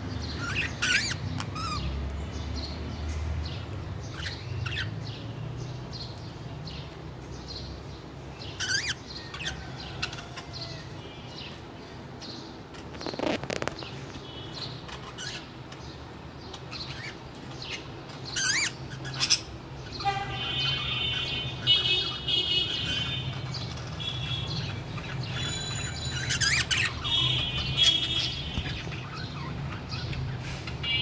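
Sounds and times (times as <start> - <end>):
budgerigars chirping and warbling: 0.2 - 2.0, 3.5 - 5.3, 8.4 - 11.6, 12.2 - 31.0.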